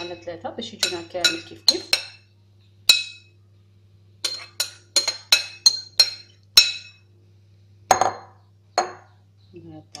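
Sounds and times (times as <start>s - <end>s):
metal spoon clinking on glass: 0.8s - 2.2s, 4.2s - 7.0s.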